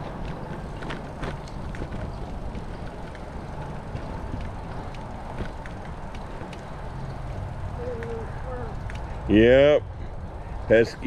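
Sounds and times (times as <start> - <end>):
tyres rolling over dirt road: 0.0 - 8.2.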